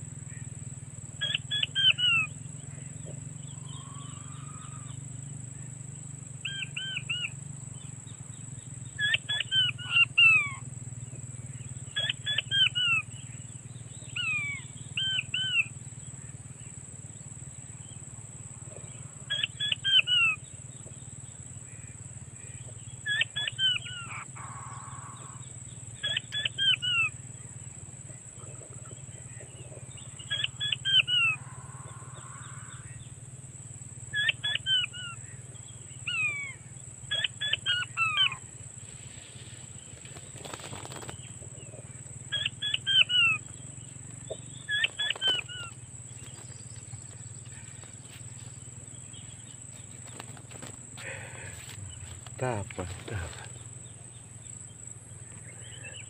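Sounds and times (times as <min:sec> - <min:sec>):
quail call through speaker: 0:01.2 - 0:02.3, 0:03.6 - 0:05.0, 0:06.4 - 0:07.3, 0:09.0 - 0:10.6, 0:12.0 - 0:13.1, 0:14.2 - 0:15.7, 0:18.8 - 0:20.4, 0:21.8 - 0:27.2, 0:30.2 - 0:33.0, 0:34.2 - 0:35.4, 0:36.1 - 0:38.4, 0:42.3 - 0:43.5, 0:44.6 - 0:46.5, 0:49.8 - 0:53.6.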